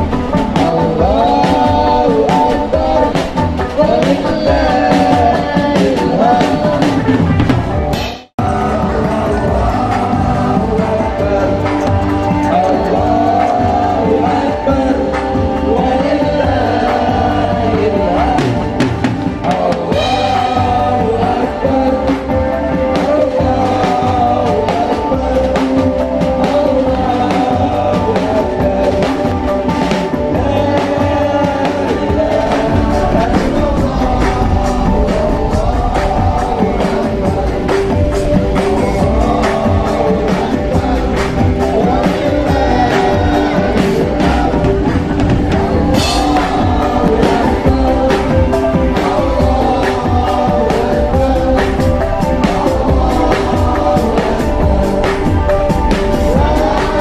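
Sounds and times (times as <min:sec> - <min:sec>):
keyboard melody: 0:00.0 - 0:57.0
person singing: 0:00.0 - 0:57.0
rock guitar and drums: 0:00.0 - 0:57.0.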